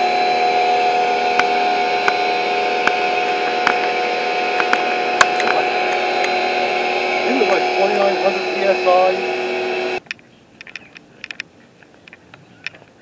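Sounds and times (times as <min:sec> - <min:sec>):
pressure washer motor hum: 0:00.0 - 0:10.0
water jet hissing on boards: 0:00.0 - 0:10.0
sharp clicks: 0:10.0 - 0:12.9.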